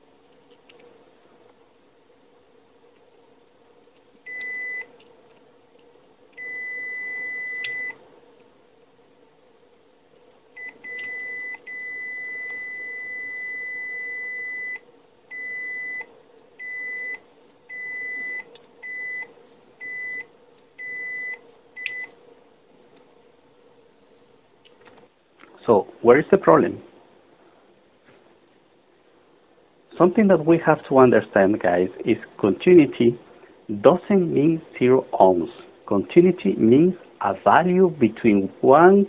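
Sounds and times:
multimeter continuity beeps: 4.2s - 5.0s, 6.3s - 8.0s, 10.6s - 22.2s.

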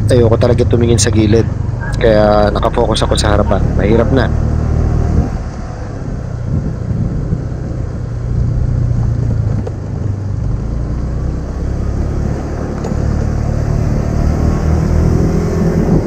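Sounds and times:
road rumble: 0.0s - 16.0s
wind: 0.0s - 16.0s.

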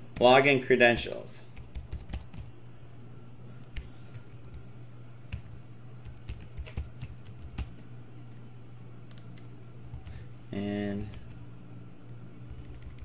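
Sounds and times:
steady low hum: 0.0s - 13.0s
keyboard keys clicking: 6.1s - 7.8s, 12.5s - 13.0s.

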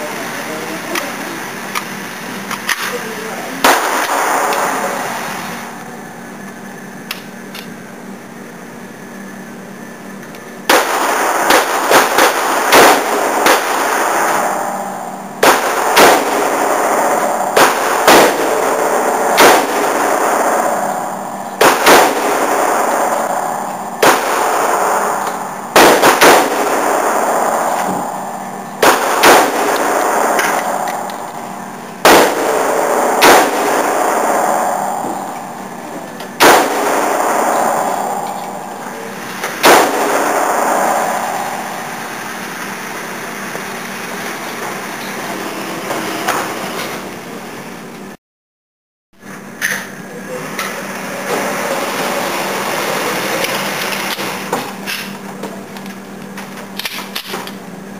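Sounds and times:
rifle shots echoing: 3.6s - 5.8s, 10.7s - 43.9s.

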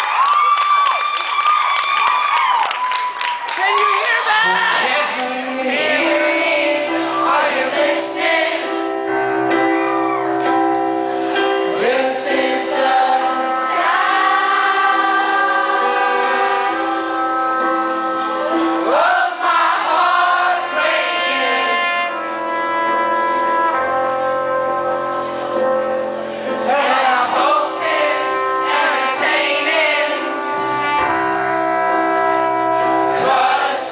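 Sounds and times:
live band playing: 3.6s - 33.9s
voices singing together: 4.4s - 9.1s, 11.4s - 22.1s, 26.5s - 30.6s, 33.0s - 33.9s
trumpet: 12.7s - 33.9s.

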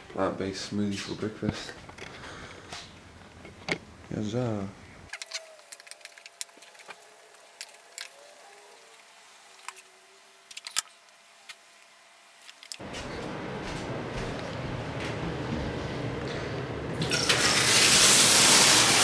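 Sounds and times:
running water: 17.0s - 19.0s.

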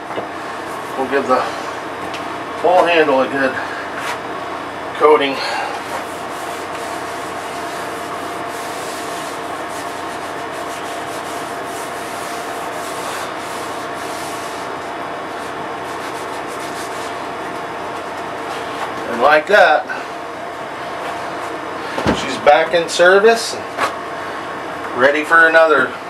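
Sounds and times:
air conditioner hum: 0.0s - 26.0s.

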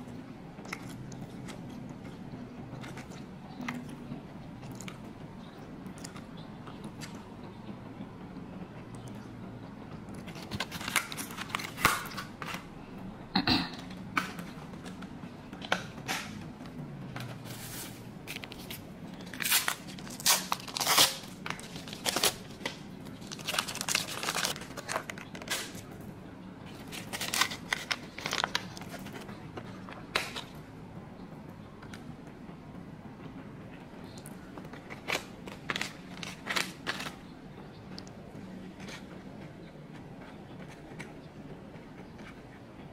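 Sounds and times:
crinkling and tearing: 17.4s - 25.9s, 26.7s - 30.5s, 34.8s - 37.2s.

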